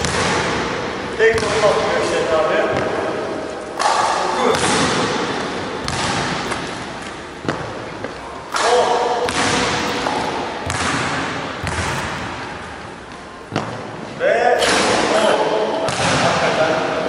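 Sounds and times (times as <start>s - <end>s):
basketball hitting hoop: 0.0s - 2.1s, 3.8s - 12.9s
basketballs thudding on gym floor: 0.0s - 3.2s, 3.8s - 13.9s.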